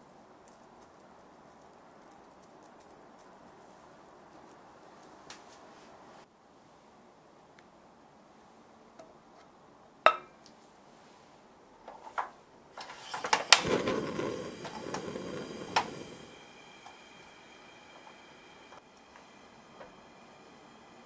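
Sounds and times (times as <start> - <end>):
gas burner hiss: 12.8 - 21.0
piezo igniter click: 13.1 - 17.3.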